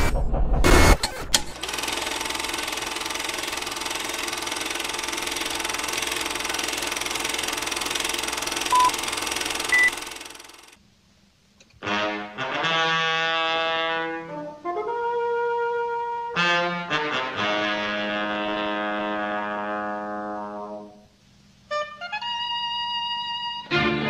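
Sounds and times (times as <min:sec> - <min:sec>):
film projector clatter: 0:01.5 - 0:10.8
short countdown beeps: 0:08.7 - 0:09.0, 0:09.7 - 0:10.0.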